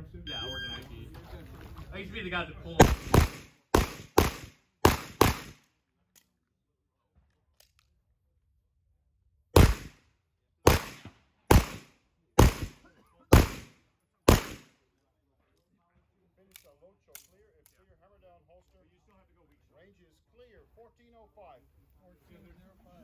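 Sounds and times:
gunshots: 2.8 - 5.6, 9.6 - 10.0, 10.6 - 14.7.

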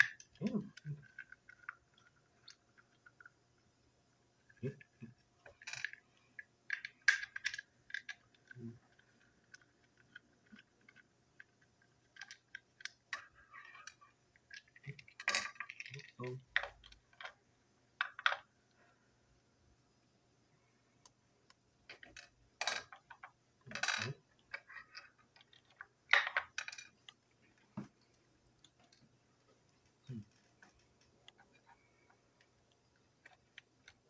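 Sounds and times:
plastic toy parts clicking: 5.4 - 17.4.

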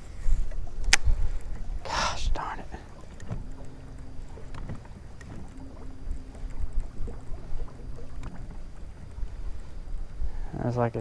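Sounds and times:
water against boat hull: 0.0 - 11.0
wind rumble on microphone: 0.0 - 11.0
light clicks: 0.4 - 1.7, 2.3 - 10.1.

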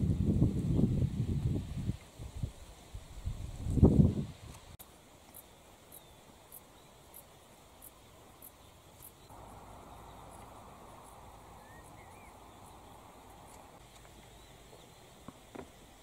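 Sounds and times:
low steady rush: 4.8 - 16.0.

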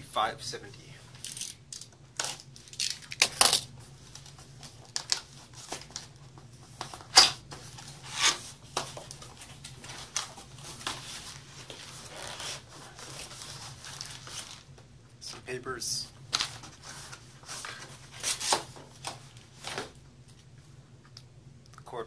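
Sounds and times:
cardboard tearing and rustling: 9.8 - 14.7, 16.3 - 19.9.

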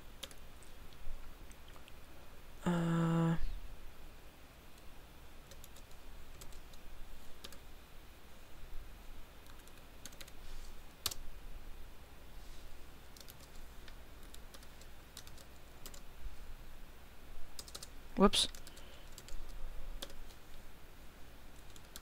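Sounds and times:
keyboard keys tapping: 5.5 - 6.8, 13.1 - 13.6, 14.2 - 16.0, 17.6 - 17.9.

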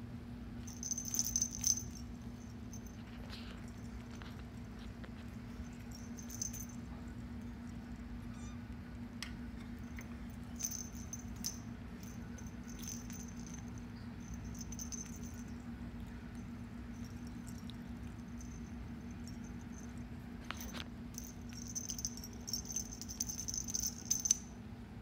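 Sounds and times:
steady low hum: 0.0 - 25.0
small bell jingling: 0.6 - 4.6, 5.4 - 7.8, 9.8 - 24.6
paws patting and rustling: 0.7 - 7.8.

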